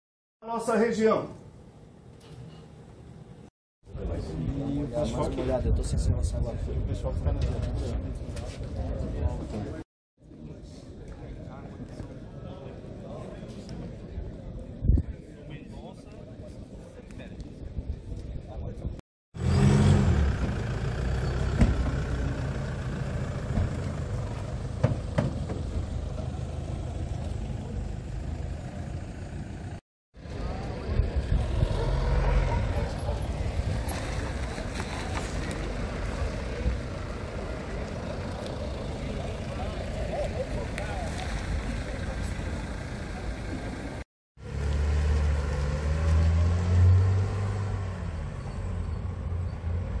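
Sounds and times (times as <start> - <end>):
vehicle engine pulling away: 19.4 - 50.0
vehicle passing: 19.4 - 50.0.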